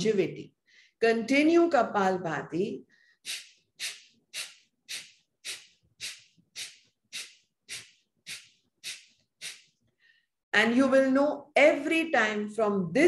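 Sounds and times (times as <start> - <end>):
forceful nasal exhalations: 3.0 - 10.2.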